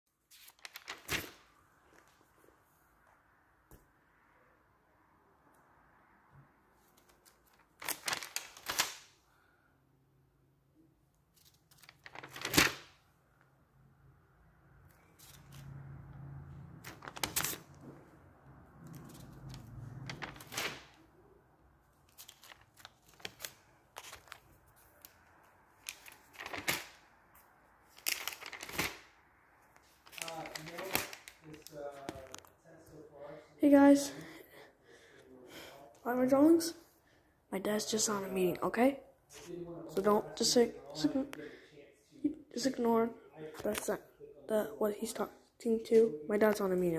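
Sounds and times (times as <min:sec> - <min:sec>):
notebook pages rustling: 0:00.2 - 0:02.3, 0:06.8 - 0:09.1, 0:11.3 - 0:13.0, 0:15.1 - 0:15.9, 0:16.7 - 0:18.0, 0:18.8 - 0:21.0, 0:21.9 - 0:29.1, 0:29.7 - 0:32.5.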